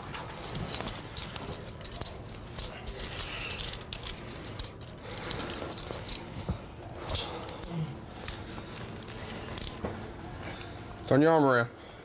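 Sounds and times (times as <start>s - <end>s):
handcuffs rattling and clicking: 0.0s - 6.4s, 7.0s - 9.8s.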